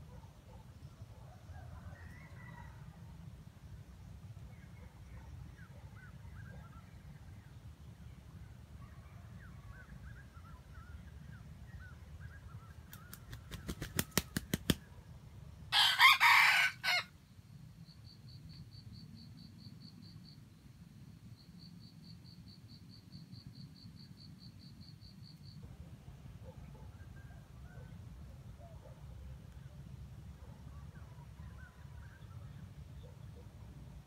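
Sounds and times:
rooster wings flapping: 12.9s - 14.8s
rooster crowing: 15.7s - 17.1s.

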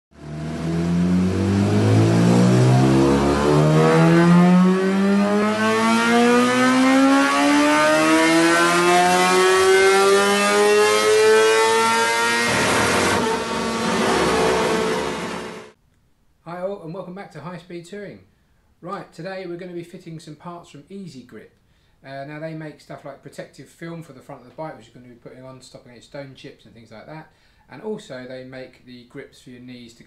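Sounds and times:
motorcycle engine accelerating: 0.1s - 15.8s.

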